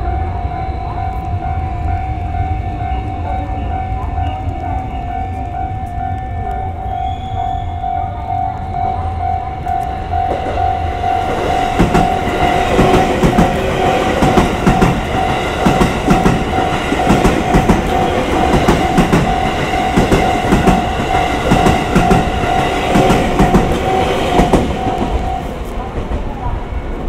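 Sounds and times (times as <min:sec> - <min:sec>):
level-crossing bell ringing: 0:00.0 - 0:06.9, 0:07.7 - 0:25.8
train wheels clacking over rail joints: 0:11.4 - 0:26.2.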